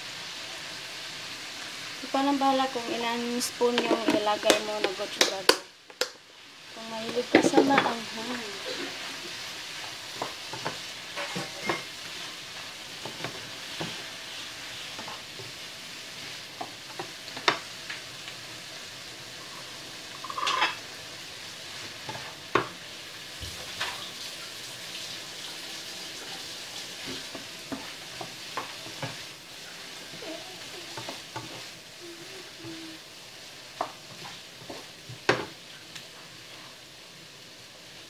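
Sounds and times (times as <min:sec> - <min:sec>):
shrimp sizzling in a frying pan: 0:00.0 - 0:38.0
spatula scraping and tapping pan: 0:03.7 - 0:06.2, 0:07.0 - 0:08.0, 0:08.7 - 0:12.4, 0:13.0 - 0:14.0, 0:14.9 - 0:15.6, 0:16.5 - 0:18.0, 0:19.4 - 0:20.8, 0:22.0 - 0:22.8, 0:27.0 - 0:29.3, 0:30.1 - 0:31.8, 0:33.7 - 0:36.0.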